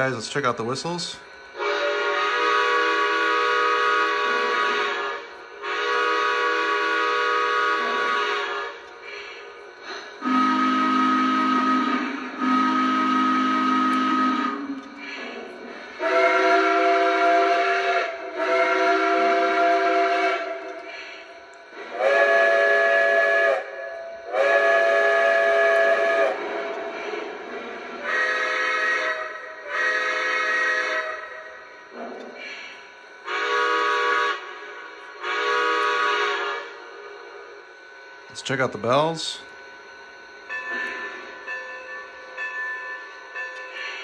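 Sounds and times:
model locomotive steam whistle blasts: 0:01.5 - 0:15.3, 0:15.9 - 0:27.3, 0:28.0 - 0:31.9, 0:33.2 - 0:37.6.

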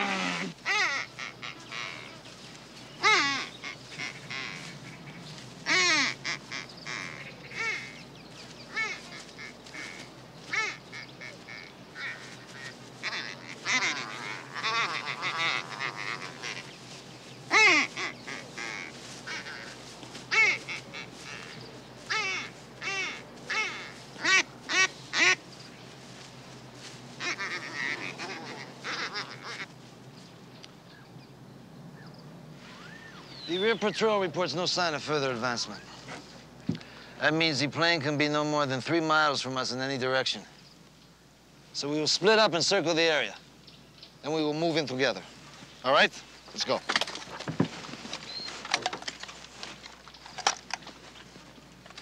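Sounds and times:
duck call quacks: 0:00.0 - 0:02.2, 0:03.0 - 0:08.0, 0:08.7 - 0:16.7, 0:17.5 - 0:25.4, 0:27.2 - 0:29.7.

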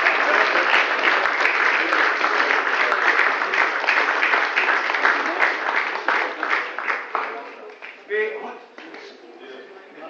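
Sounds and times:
audience clapping: 0:00.0 - 0:08.2.

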